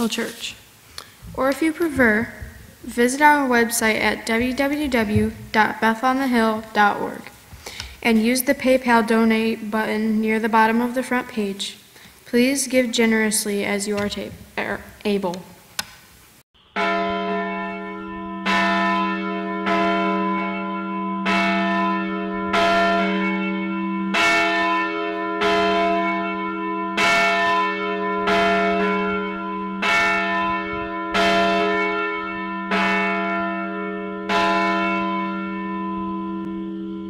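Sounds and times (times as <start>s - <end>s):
church bells ringing: 16.6s - 37.0s.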